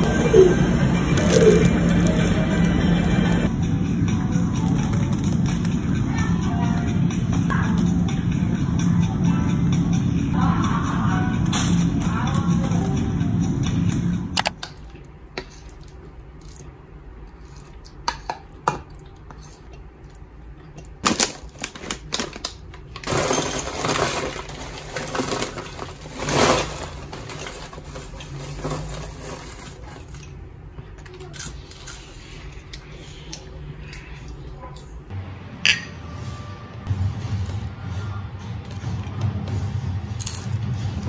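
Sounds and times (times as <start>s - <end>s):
background music: 0.0s - 14.5s, 35.2s - 41.0s
plastic bag crinkling: 21.1s - 30.2s.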